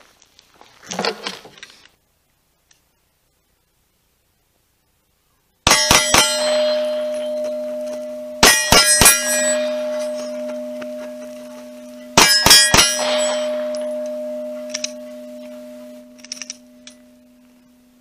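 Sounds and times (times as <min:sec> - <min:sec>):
steel targets ringing: 0:05.7 - 0:18.0.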